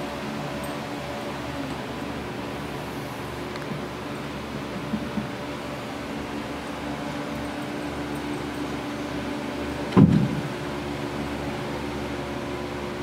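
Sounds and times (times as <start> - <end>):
electric fans humming: 0.0 - 13.0
step stool thud on floor: 9.9 - 10.5.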